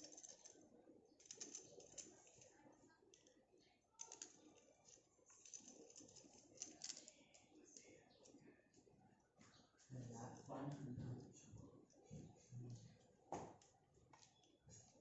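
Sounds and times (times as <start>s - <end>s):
small plastic parts clicking: 4.0s - 8.4s.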